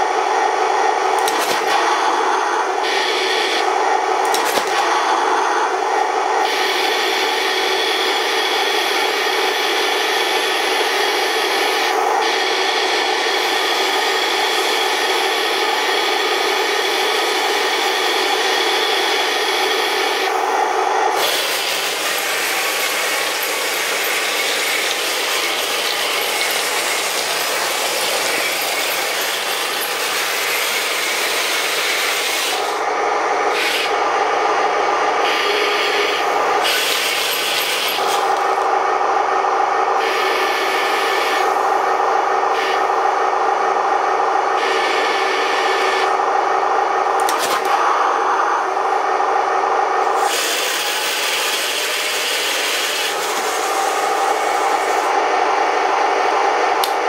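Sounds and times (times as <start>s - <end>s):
toy tank turret gear whine: 6.5s - 32.8s, 35.2s - 38.7s.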